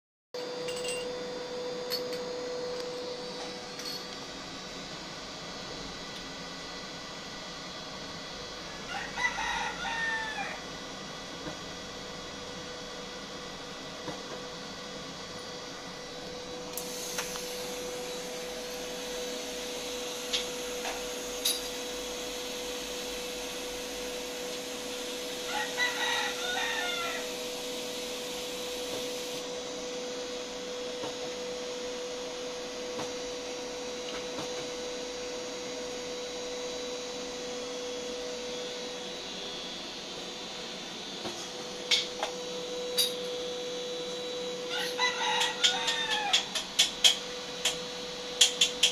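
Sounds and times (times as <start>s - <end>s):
steady machine hum: 0.4s - 48.9s
rooster crowing: 8.7s - 10.7s, 25.4s - 27.4s, 44.6s - 46.6s.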